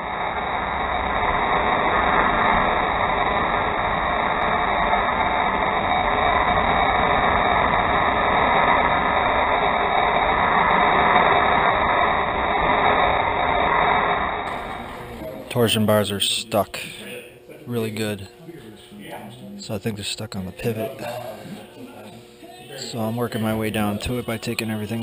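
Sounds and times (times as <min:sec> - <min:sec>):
cutting torch hissing: 0:00.0 - 0:25.0.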